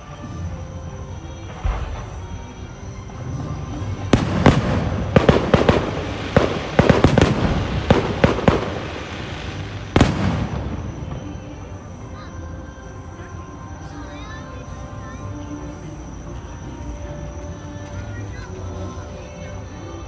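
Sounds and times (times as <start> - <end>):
fireworks bangs and crackles: 0.2 - 13.3.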